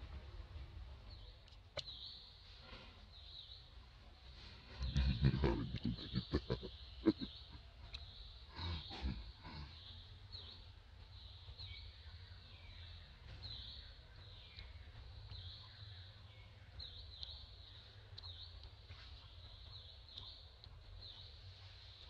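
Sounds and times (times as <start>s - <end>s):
birds calling: 4.7s - 22.0s.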